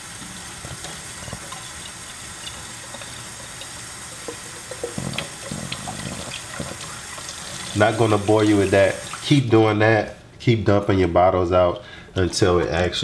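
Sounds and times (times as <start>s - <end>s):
faucet water filling a glass bottle: 0.0s - 9.4s.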